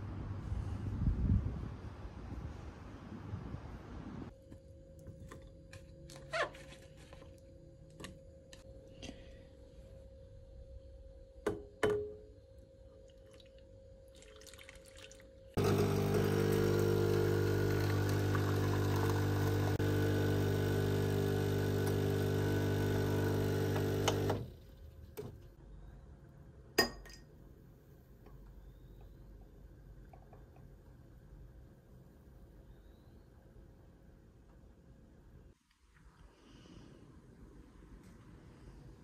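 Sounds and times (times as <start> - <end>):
appliance motor humming: 15.6 - 24.5.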